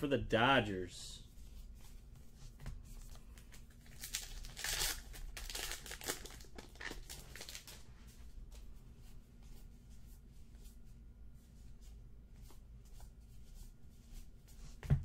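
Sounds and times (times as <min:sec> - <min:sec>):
card pack wrapper crinkling and tearing: 0:03.7 - 0:07.8.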